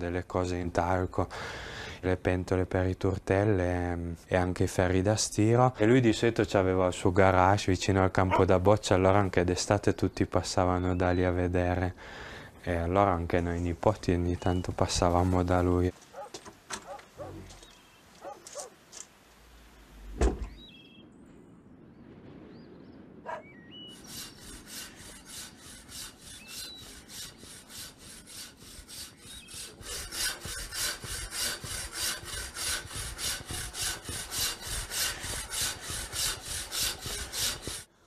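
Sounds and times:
footsteps: 0:15.1 - 0:19.1
door: 0:20.2 - 0:20.6
hand saw rasping through stone: 0:24.0 - 0:37.9.

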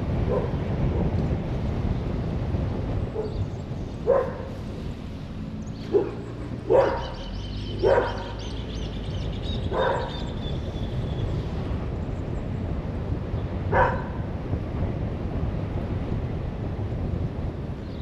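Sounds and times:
car driving rumble: 0:00.0 - 0:18.0
dog barking: 0:00.3 - 0:00.6, 0:04.0 - 0:04.5, 0:05.9 - 0:07.2, 0:07.8 - 0:08.4, 0:09.7 - 0:10.2, 0:13.7 - 0:14.2.

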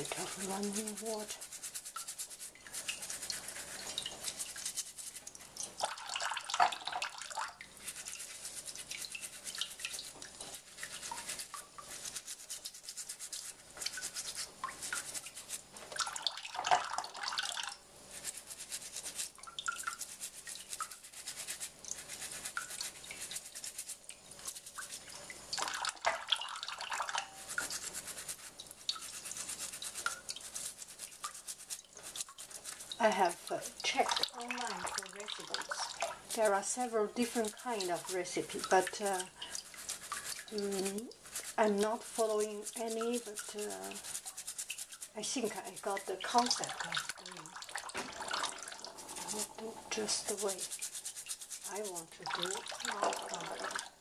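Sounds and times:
toothbrush scrubbing orange peel: 0:00.0 - 0:54.0
tap water splashing into pot: 0:05.4 - 0:07.7, 0:15.8 - 0:17.8, 0:25.1 - 0:27.3, 0:46.5 - 0:49.9.

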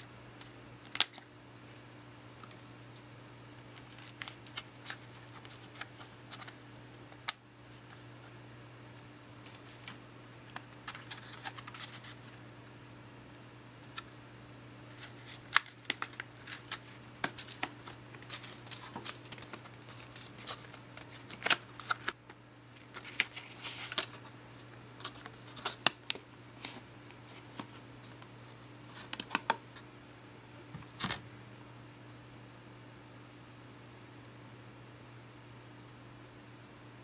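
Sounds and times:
steady low hum: 0:00.0 - 0:37.0
plastic pack crackling: 0:03.6 - 0:06.6, 0:14.9 - 0:24.3.

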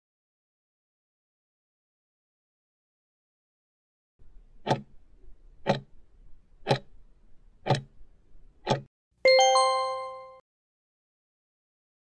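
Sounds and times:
clock ticks: 0:04.6 - 0:05.0, 0:05.6 - 0:06.0, 0:06.6 - 0:07.0, 0:07.6 - 0:07.9, 0:08.6 - 0:08.9
bright ringing chime: 0:09.3 - 0:10.4.

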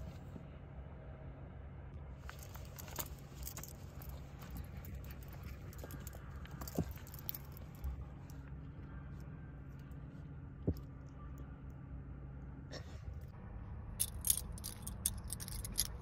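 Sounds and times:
steady low hum: 0:00.0 - 0:16.0
metal collar tags jingling: 0:02.3 - 0:08.4, 0:14.0 - 0:16.0.

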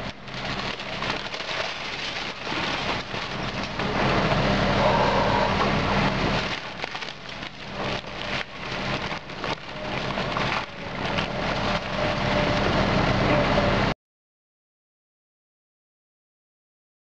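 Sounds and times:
wood cracking and splintering: 0:00.0 - 0:04.1, 0:05.6 - 0:12.7
excavator diesel engine: 0:00.0 - 0:14.0.

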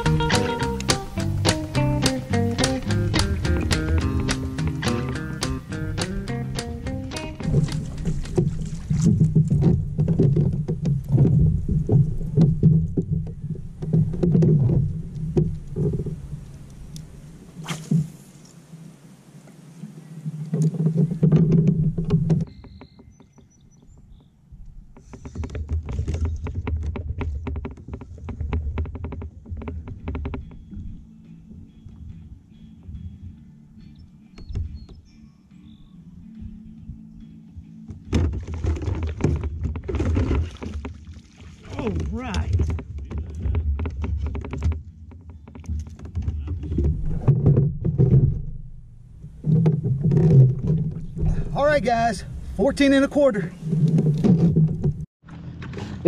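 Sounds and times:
fish thumping on plastic kayak: 0:00.0 - 0:16.2, 0:25.0 - 0:30.6, 0:38.0 - 0:48.6.

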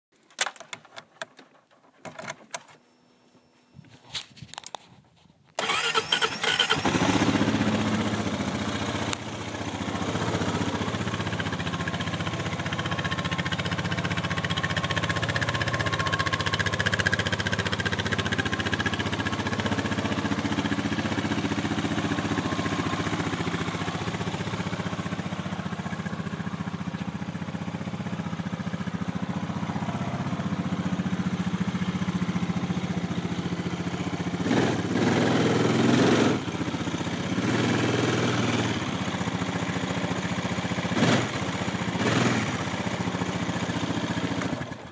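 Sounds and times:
engine clicks: 0:05.5 - 0:07.0
quad bike engine idling: 0:05.6 - 0:44.9.

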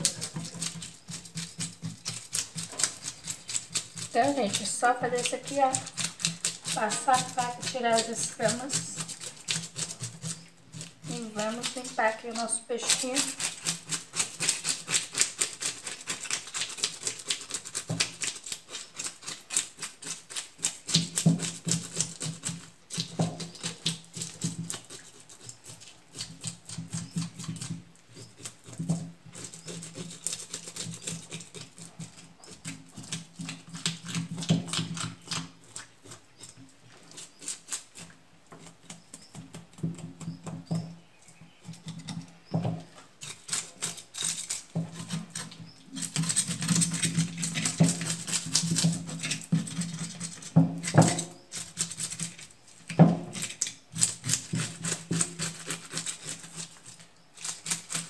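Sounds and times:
knife scraping fish scales: 0:00.0 - 0:39.6, 0:42.9 - 0:58.0.

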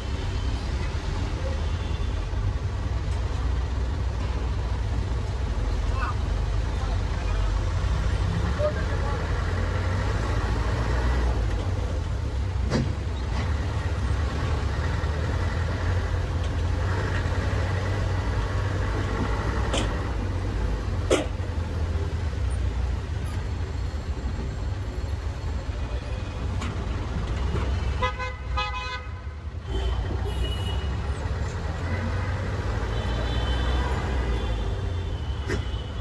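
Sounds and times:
road traffic rumble: 0:00.0 - 0:36.0
vehicle horns: 0:27.9 - 0:31.0, 0:32.8 - 0:36.0.

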